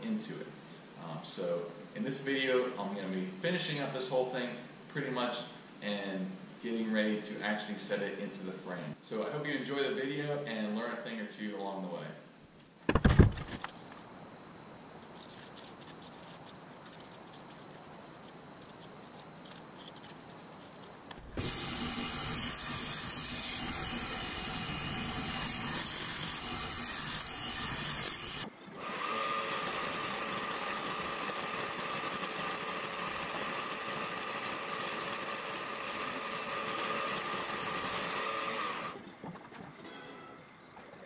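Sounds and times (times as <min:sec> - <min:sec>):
milling machine whine: 0:21.2 - 0:39.0
bandsaw cutting metal plate: 0:21.4 - 0:39.0.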